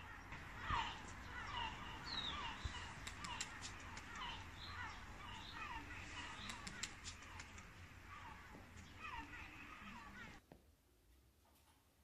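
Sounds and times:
birds chirping: 0.0 - 10.4
faint sharp clicks: 2.8 - 4.5, 6.2 - 7.8.

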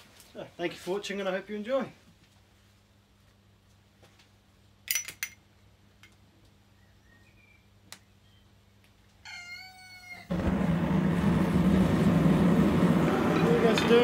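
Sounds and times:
gas burner rushing: 10.3 - 14.0.

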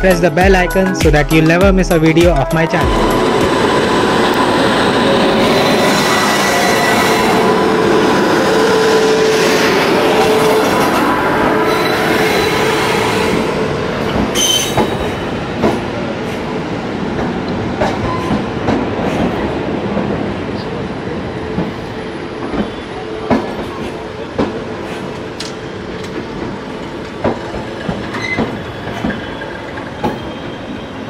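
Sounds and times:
train rumbling on rails: 2.6 - 31.0
wheels squealing: 27.8 - 31.0.

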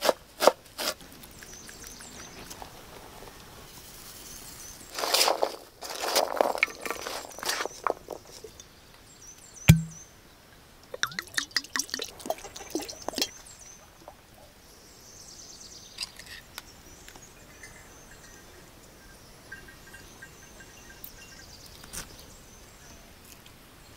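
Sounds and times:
vegetables rustling and crunching: 4.9 - 8.5
glass clinks: 9.7 - 10.0, 11.0 - 11.4
loud thump: 9.7 - 10.0
liquid pouring and splashing: 11.0 - 13.4.

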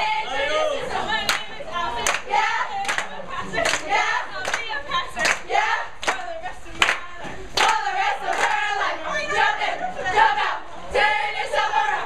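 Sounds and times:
girls chanting cheer: 0.0 - 7.0, 7.6 - 12.0
hands clapping: 1.3 - 8.6.

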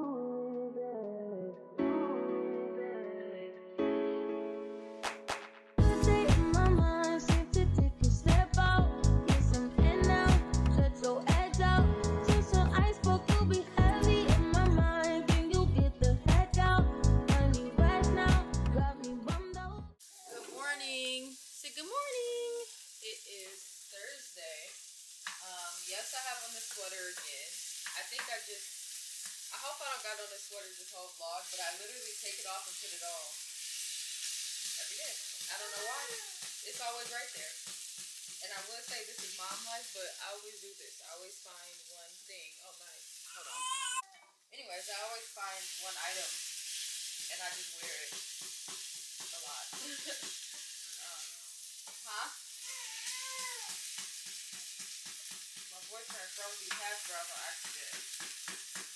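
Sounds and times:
woman singing softly: 0.0 - 3.8, 5.8 - 20.0
steady sizzling hiss: 20.0 - 58.9.

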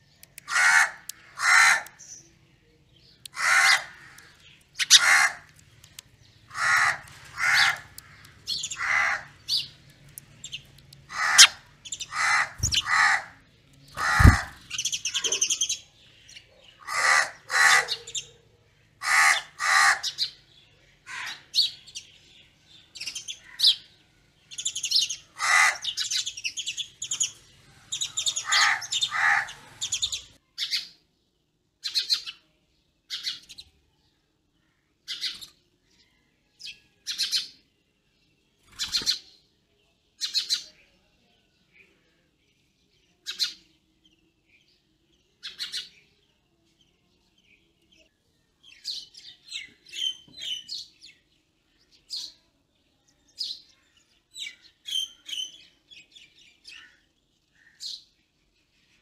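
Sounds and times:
mynas harsh chattering calls: 0.4 - 2.0, 3.3 - 5.6, 6.5 - 9.7, 11.1 - 15.8, 16.8 - 18.3, 19.0 - 20.4, 24.8 - 26.4, 27.9 - 30.4.

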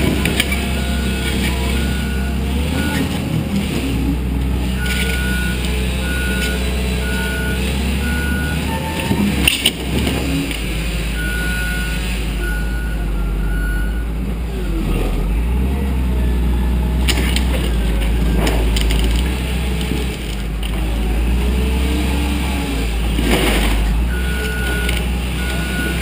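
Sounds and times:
diesel engine under load: 0.0 - 26.0
backup alarm beeping: 0.6 - 3.1, 4.8 - 9.3, 11.2 - 14.1, 24.1 - 26.0.

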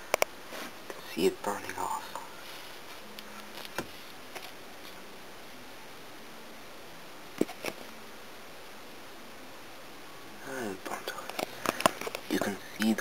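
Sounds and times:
electric arc crackles: 0.0 - 5.5.

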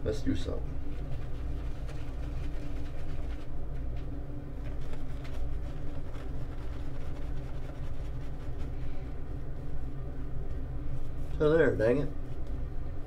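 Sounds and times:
steady low rumble: 0.0 - 13.0
shaving brush scratching on beard: 0.8 - 3.5, 4.7 - 8.8.

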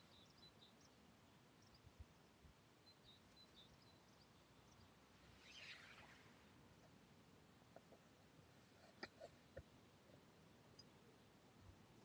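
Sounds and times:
faint bird chirps: 0.0 - 7.1
soft hiss or rustle: 0.0 - 12.0.

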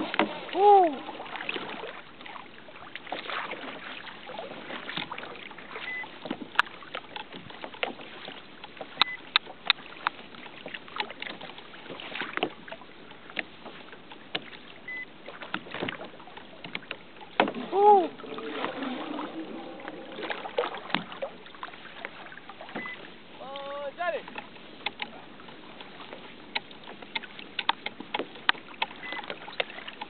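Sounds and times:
water lapping against kayak hull: 0.0 - 30.0
sharp clicks and knocks: 24.3 - 25.1, 26.5 - 29.7.

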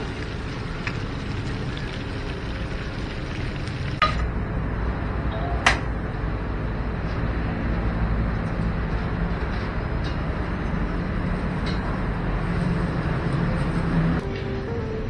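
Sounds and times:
food frying in hot oil: 0.0 - 4.2.

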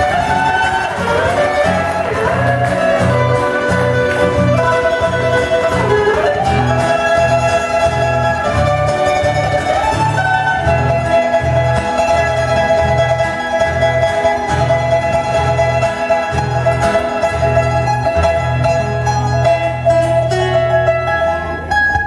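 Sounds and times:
solo classical guitar: 0.0 - 22.0.

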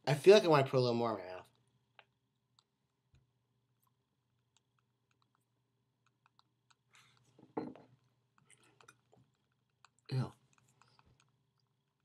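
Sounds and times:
wet mouth clicks chewing: 3.8 - 7.4, 8.3 - 12.0.

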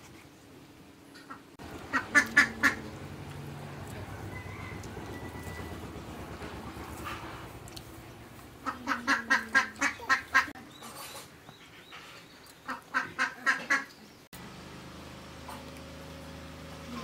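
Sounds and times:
duck-like bird calling: 1.3 - 3.0, 8.6 - 10.6.

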